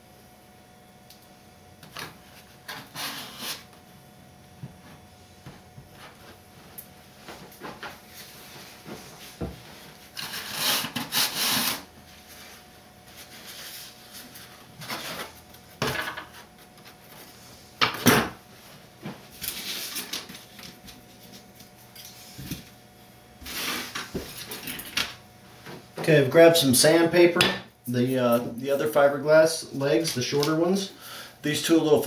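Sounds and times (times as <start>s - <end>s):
handling noise rustling and rubbing: 4.7s - 10.2s.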